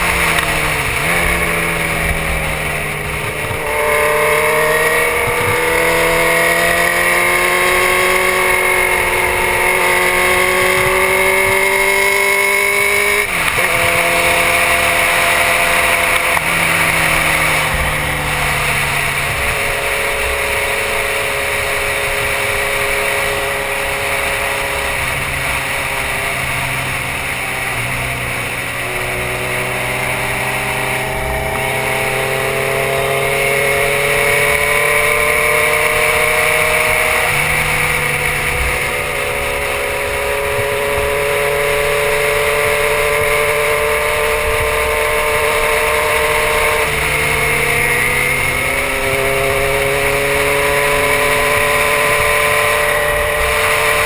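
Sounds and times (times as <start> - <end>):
motorcycle engine running: 0.0 - 54.0
wind rush on microphone: 33.9 - 54.0.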